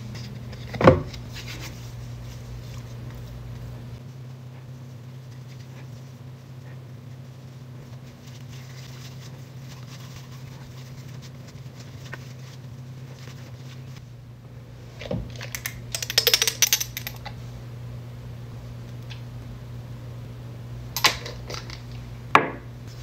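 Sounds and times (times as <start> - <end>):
soft rubbing: 0.0 - 14.1
steady low hum: 0.0 - 23.0.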